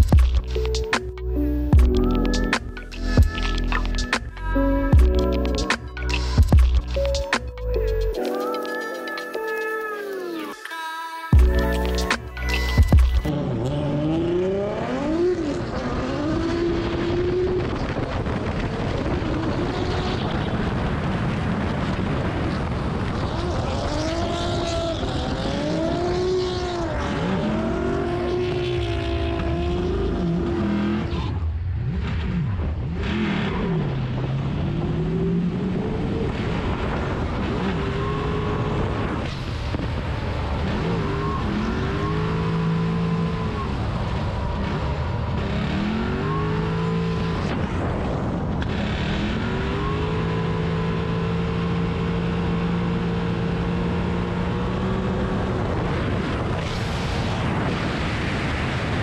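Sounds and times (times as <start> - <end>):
car engine revving: 11.4 - 58.1.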